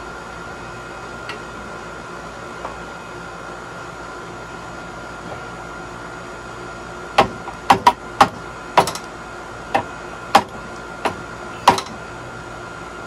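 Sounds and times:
metal-on-metal knocks: 7.2s - 9.1s, 9.8s - 12.0s.

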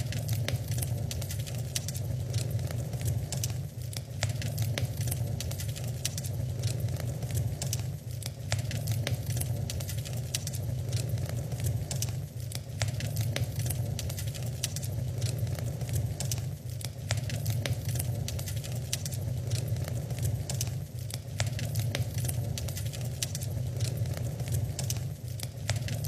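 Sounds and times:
low steady rumble: 0.0s - 26.0s
wood fire crackling: 0.0s - 26.0s.

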